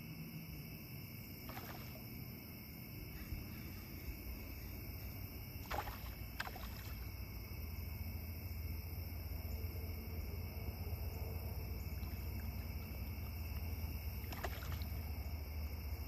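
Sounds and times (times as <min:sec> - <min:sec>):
high-pitched insect chorus: 0:00.0 - 0:16.0
water splashing: 0:01.4 - 0:02.5, 0:03.2 - 0:07.3, 0:11.7 - 0:15.6.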